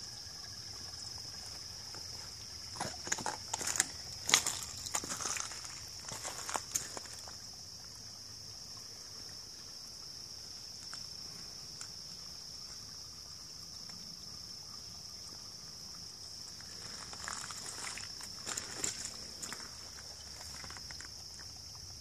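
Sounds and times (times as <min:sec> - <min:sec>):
insects droning: 0:00.0 - 0:22.0
footsteps in dry leaves: 0:03.1 - 0:07.1.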